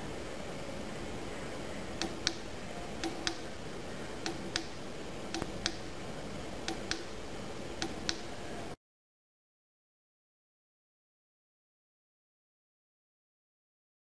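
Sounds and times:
steady background hiss: 0.0s - 8.8s
keypad button clicks: 2.0s - 3.5s, 4.2s - 5.9s, 6.7s - 7.1s.

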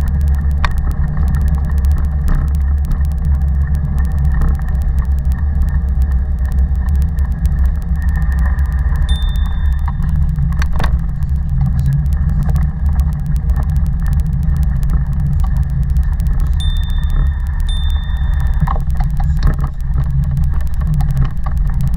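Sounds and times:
thin high tone: 9.1s - 10.6s, 16.5s - 19.4s.

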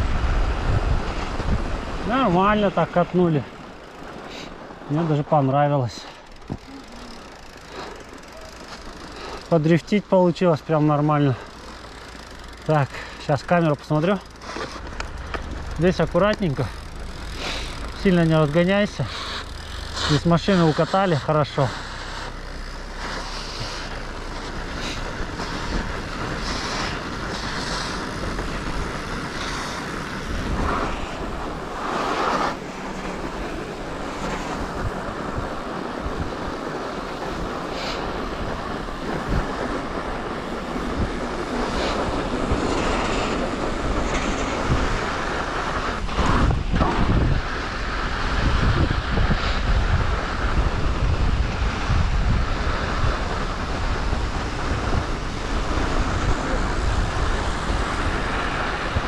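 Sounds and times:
wind buffeting microphone: 0.0s - 5.2s, 21.9s - 59.0s
bike rattling: 0.0s - 59.0s
tyre noise on snow: 0.0s - 59.0s.

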